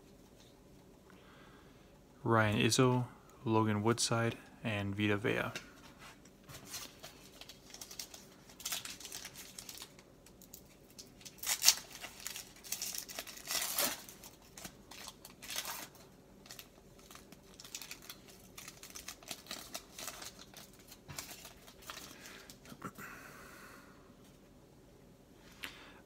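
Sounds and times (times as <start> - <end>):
foil wrapper crinkling and tearing: 6.6 - 22.8.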